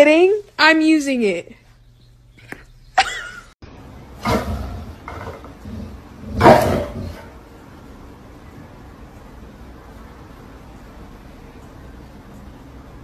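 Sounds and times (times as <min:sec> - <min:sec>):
dog barking: 0:06.4 - 0:07.3.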